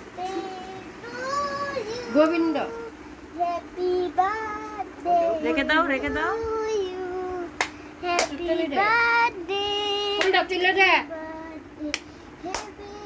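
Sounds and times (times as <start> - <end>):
hand claps: 7.6 - 8.4, 11.9 - 12.8.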